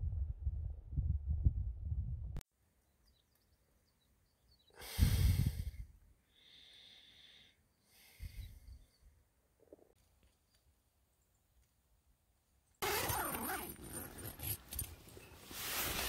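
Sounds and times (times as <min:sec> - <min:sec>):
wind rumble on microphone: 0:00.0 - 0:02.4, 0:05.0 - 0:06.0
breathy exhales: 0:04.8 - 0:08.9.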